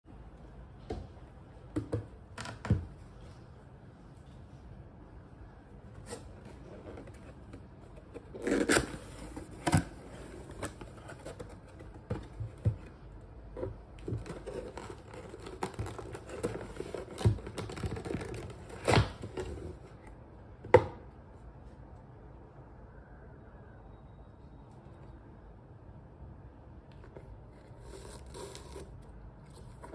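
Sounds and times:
cardboard scraping and rustling: 6.0s - 13.0s, 13.6s - 20.1s, 27.1s - 29.9s.

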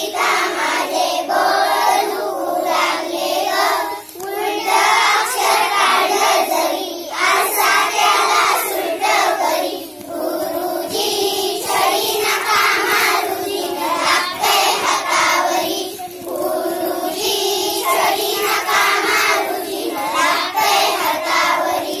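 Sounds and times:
children singing in unison: 0.0s - 22.0s.

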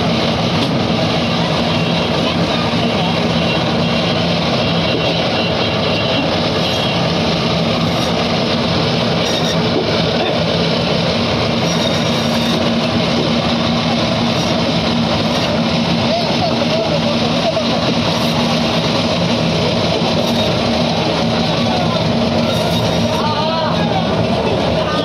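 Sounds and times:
band saw cutting fish: 6.0s - 8.4s, 9.0s - 10.4s, 11.4s - 23.4s.

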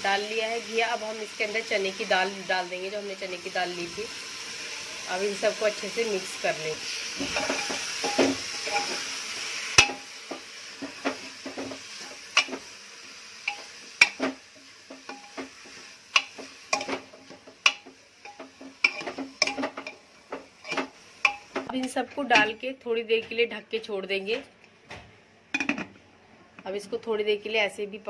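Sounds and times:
masala sizzling: 0.0s - 24.4s
spoon knocking and scraping metal pot: 7.2s - 9.0s, 9.8s - 12.6s, 13.5s - 15.6s, 16.2s - 22.6s, 25.6s - 26.0s.

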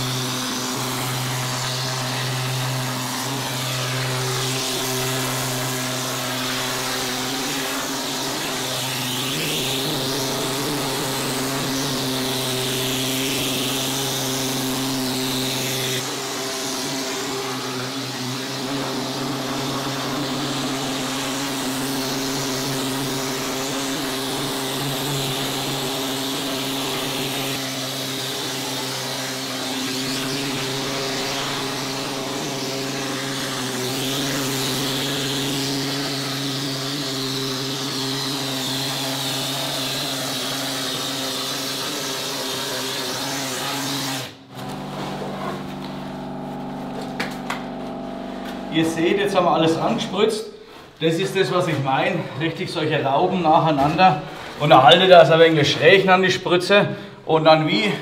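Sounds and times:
compressed air hissing: 0.0s - 44.4s
machine drone: 44.5s - 50.2s.

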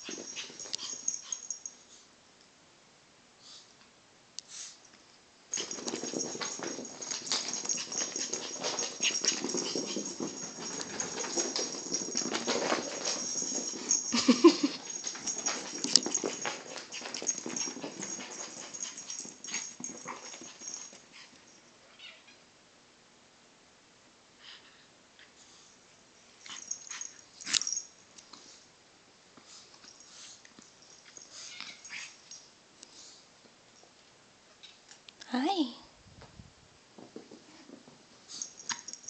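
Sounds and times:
animals scuffling: 0.0s - 1.6s, 5.5s - 21.1s
small dog play noises: 0.0s - 2.0s, 5.5s - 22.1s, 24.4s - 28.7s, 29.4s - 33.2s, 37.0s - 39.0s.

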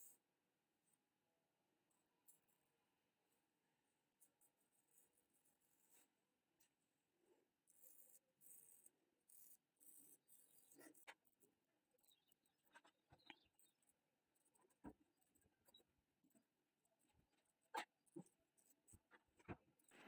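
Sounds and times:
razor scraping skin: 7.6s - 19.9s.

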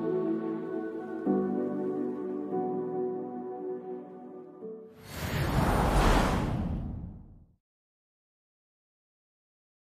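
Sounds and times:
deep cinematic whoosh: 5.0s - 7.6s.

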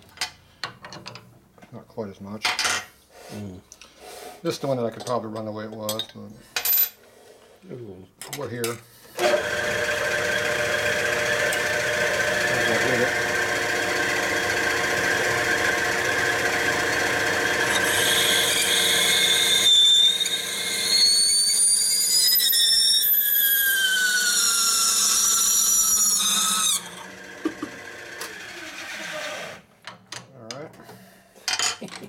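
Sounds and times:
drill press running: 9.2s - 29.6s
reamer squealing: 17.6s - 27.1s.

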